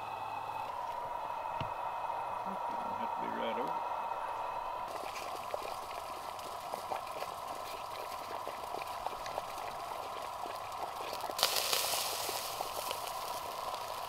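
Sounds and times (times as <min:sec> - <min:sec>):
fire crackling: 0:00.0 - 0:14.0
kettle water boiling: 0:00.0 - 0:14.0
water bubbling over hiss: 0:04.8 - 0:14.0.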